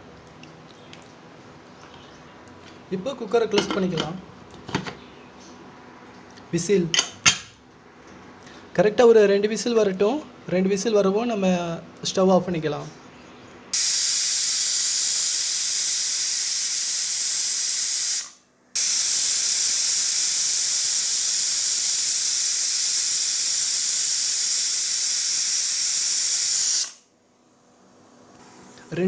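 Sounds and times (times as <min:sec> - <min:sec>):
pressure cooker whistling: 0:13.7 - 0:27.0.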